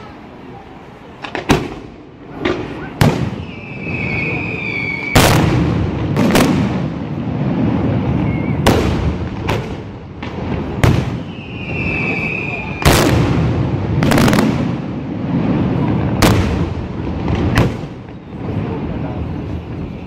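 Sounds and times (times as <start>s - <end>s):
high steady whistle: 3.3s - 5.2s, 8.2s - 8.6s, 11.2s - 12.9s.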